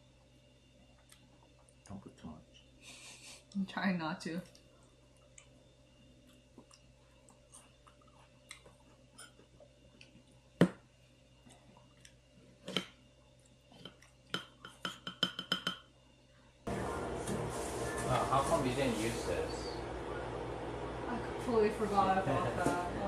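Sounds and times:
people chewing: 0.8s - 3.6s, 4.4s - 10.5s, 11.3s - 14.8s.

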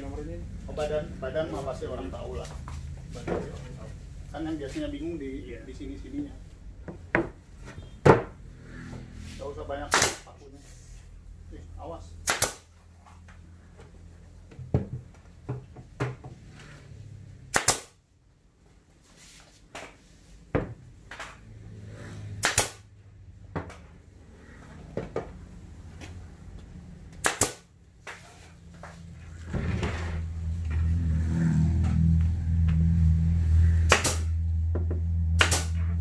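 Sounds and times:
nail gun firing into plywood: 9.9s - 10.3s, 12.2s - 12.7s, 17.5s - 18.0s, 22.4s - 22.8s, 27.2s - 27.6s, 33.9s - 34.3s, 35.4s - 35.7s
low hum: 29.0s - 36.0s.

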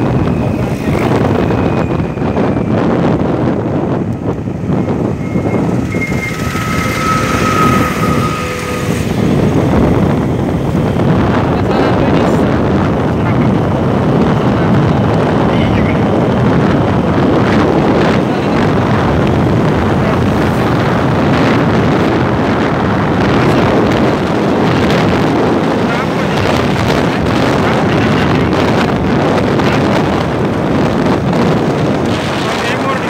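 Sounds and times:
vehicle running noise: 0.0s - 33.0s
wind buffeting microphone: 0.0s - 33.0s.

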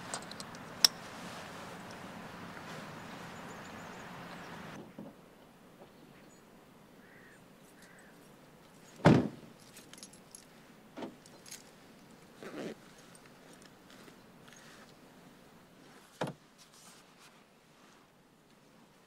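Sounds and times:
car door slamming: 9.0s - 9.4s.

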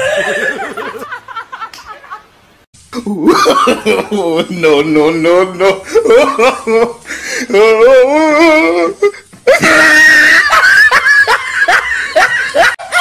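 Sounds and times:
person laughing hard: 0.0s - 2.2s, 5.6s - 13.0s.

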